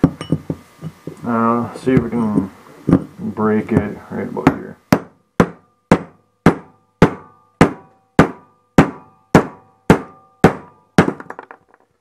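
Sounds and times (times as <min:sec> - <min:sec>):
hammer striking steel chisel: 0:03.8 - 0:11.5.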